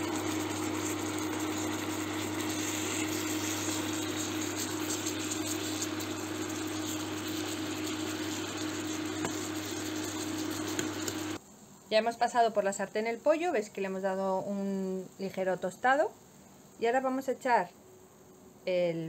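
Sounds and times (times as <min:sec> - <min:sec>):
chicken sizzling in oil: 0:00.0 - 0:14.0.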